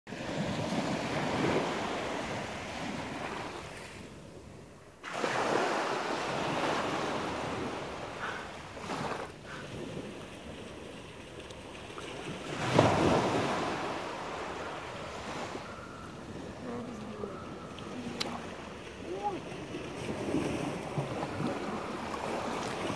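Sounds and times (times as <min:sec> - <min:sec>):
surf washing up a beach: 0:00.1 - 0:22.9
wind buffeting microphone: 0:15.9 - 0:22.9.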